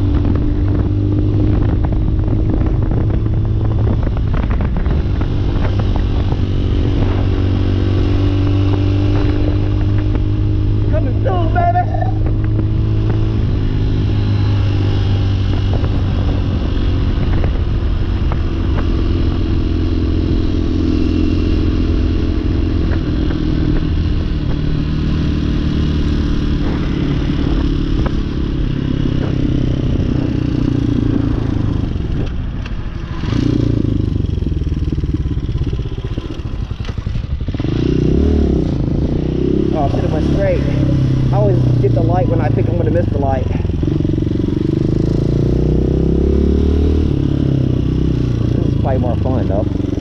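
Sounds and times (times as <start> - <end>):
motorcycle engine running: 0.0 - 50.0.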